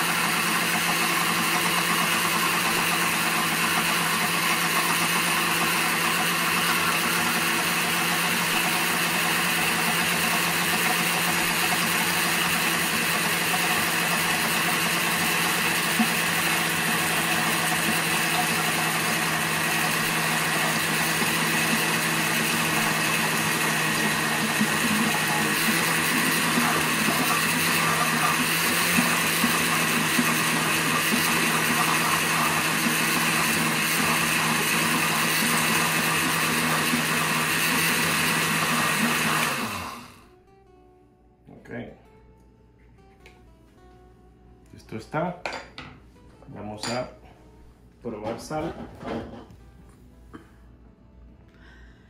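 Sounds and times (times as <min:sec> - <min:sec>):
blender motor running: 0:00.0 - 0:40.3.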